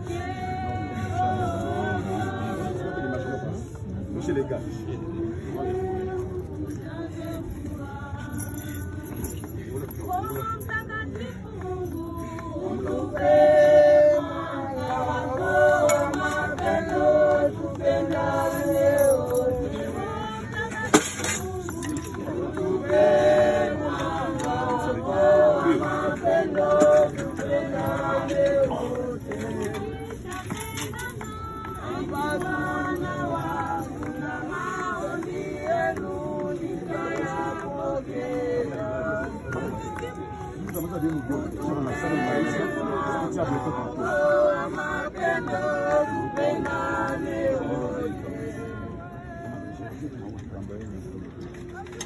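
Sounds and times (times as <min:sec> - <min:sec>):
group singing unaccompanied: 0:00.0 - 0:50.2.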